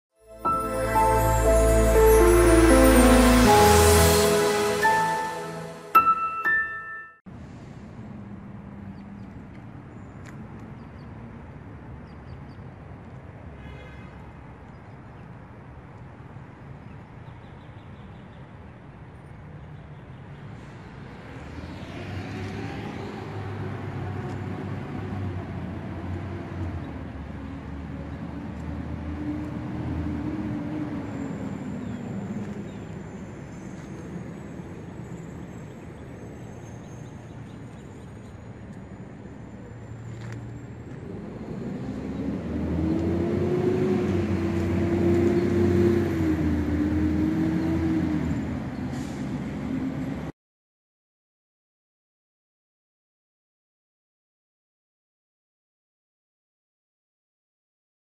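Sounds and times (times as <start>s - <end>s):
steady traffic hum: 7.3s - 50.3s
vehicle engine passing: 20.6s - 32.9s, 40.1s - 50.3s.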